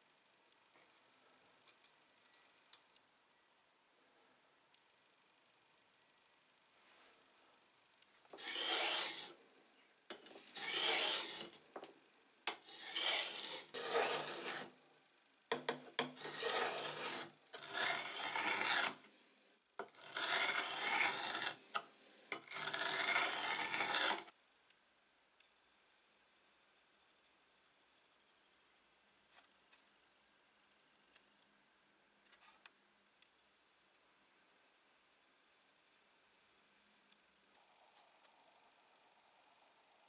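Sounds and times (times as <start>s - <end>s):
sharpening stone rubbing on blade: 8.3s - 9.3s, 10.1s - 11.6s, 12.5s - 14.7s, 15.5s - 19.0s, 19.8s - 21.6s, 22.3s - 24.3s.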